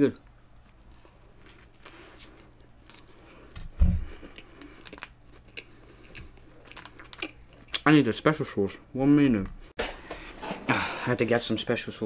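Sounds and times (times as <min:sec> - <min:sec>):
chewing with wet mouth sounds: 0:00.2 - 0:07.9.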